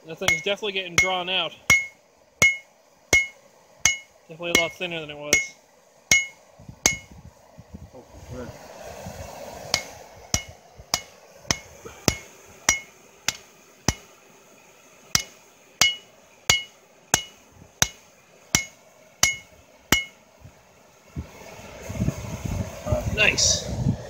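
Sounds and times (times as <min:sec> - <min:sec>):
hammer striking steel on anvil: 0:00.2 - 0:07.1, 0:09.7 - 0:14.1, 0:15.2 - 0:18.0, 0:18.6 - 0:20.2.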